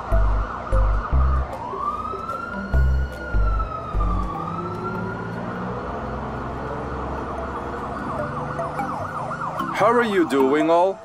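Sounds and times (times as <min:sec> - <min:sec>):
deep bass music: 0:00.0 - 0:04.8
police siren wailing: 0:00.0 - 0:11.0.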